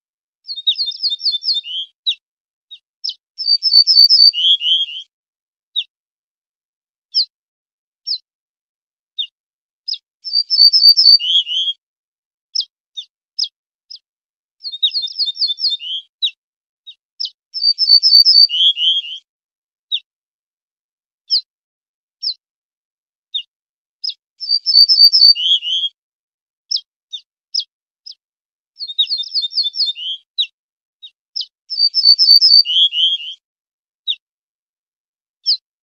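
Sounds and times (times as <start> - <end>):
bird call notes: 3.0 - 5.1, 10.3 - 11.8, 17.6 - 19.2, 24.4 - 26.0, 28.8 - 30.3, 31.4 - 33.4
bunting singing: 3.1 - 5.1, 10.3 - 11.8, 14.7 - 16.4, 17.6 - 19.2, 24.4 - 25.9, 28.8 - 30.6, 31.4 - 33.4.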